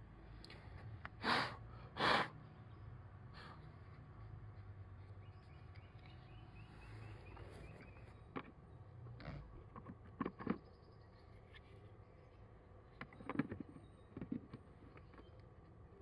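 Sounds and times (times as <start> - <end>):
faint low hum: 0.0 - 16.0
puffs of breath: 0.5 - 2.4.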